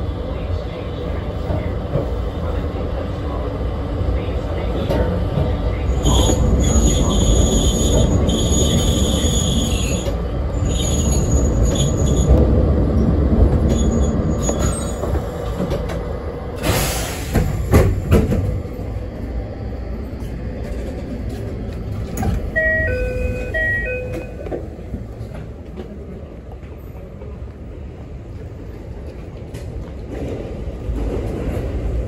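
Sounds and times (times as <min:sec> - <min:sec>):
train low rumble: 0:00.0 - 0:32.0
train doors knocking open: 0:14.4 - 0:18.7.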